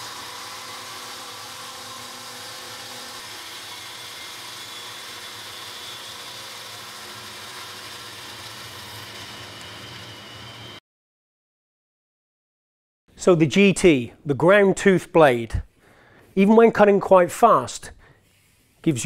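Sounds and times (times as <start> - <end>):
bandsaw cutting timber: 0.0 - 10.8.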